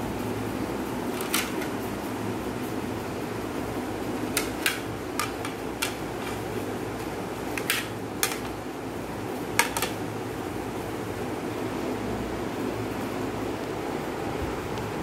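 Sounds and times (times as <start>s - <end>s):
steady low hum: 0.0s - 15.0s
plastic plates clicking together: 1.1s - 1.8s, 4.3s - 8.6s, 9.5s - 10.0s.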